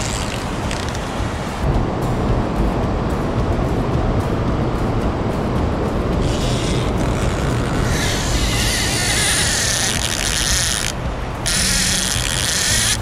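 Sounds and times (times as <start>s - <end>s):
fishing reel drag buzzing: 0.0s - 1.0s, 6.2s - 13.0s
fast river water rumbling: 0.0s - 13.0s.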